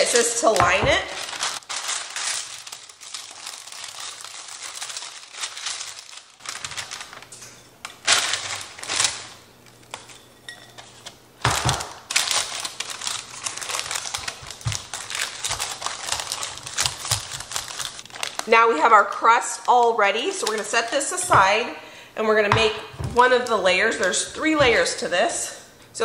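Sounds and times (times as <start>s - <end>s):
parchment paper crinkling: 0.0s - 10.2s, 10.8s - 21.2s
crumbly mixture patted down: 11.5s - 18.5s.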